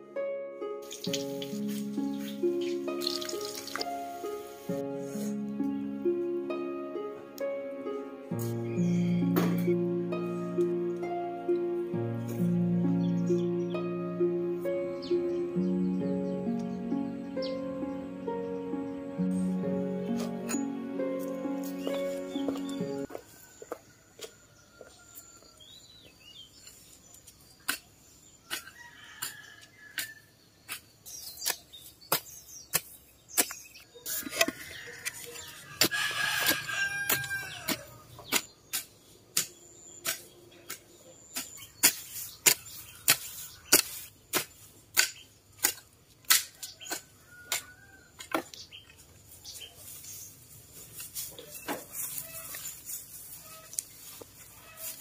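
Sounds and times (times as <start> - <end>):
rooster crowing: 23.1 - 25.6, 34.0 - 38.1
hoe chopping into soil: 28.5 - 48.6.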